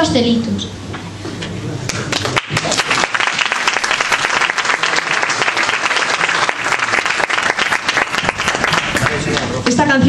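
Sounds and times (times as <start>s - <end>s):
audience applauding: 1.9s - 9.6s.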